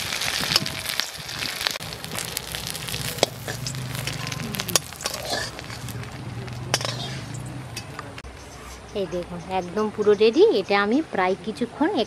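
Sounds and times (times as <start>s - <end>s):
food sizzling in hot oil: 0.0s - 7.8s
metal spatula scraping pan: 2.6s - 6.0s, 6.7s - 7.9s.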